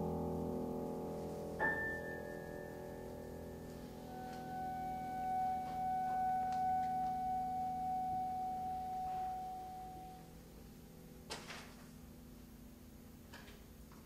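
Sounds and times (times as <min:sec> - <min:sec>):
clarinet holding high note: 0:04.0 - 0:10.3.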